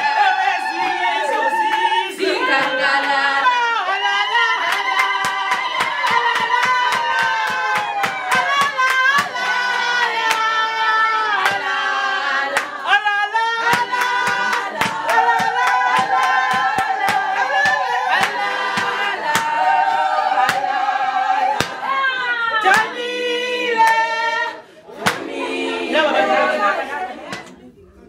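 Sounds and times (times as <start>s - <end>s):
women singing in chorus: 0.0s - 27.7s
hand-clapping in time: 0.7s - 3.6s, 4.6s - 10.6s, 11.4s - 11.9s, 12.5s - 13.0s, 13.6s - 20.8s, 21.5s - 21.9s, 22.6s - 23.0s, 23.8s - 24.1s, 25.0s - 25.4s.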